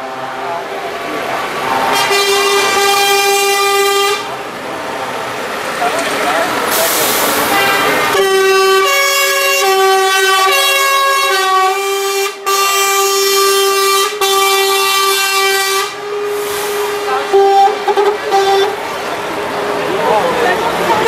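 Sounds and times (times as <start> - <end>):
truck air horns blasting: 1.8 - 4.4, 6.7 - 19.8.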